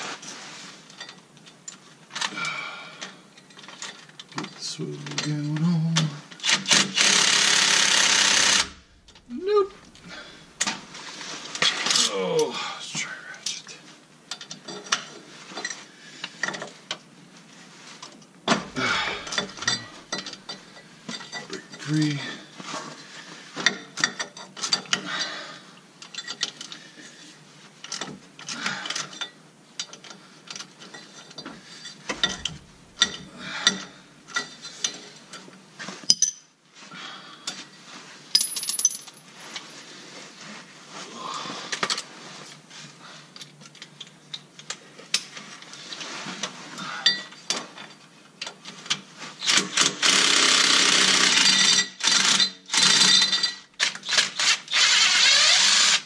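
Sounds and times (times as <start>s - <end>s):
ratchet clicks: 6.4s - 8.8s
impact driver running: 6.5s - 9.1s
metal clinks: 38.3s - 39.3s.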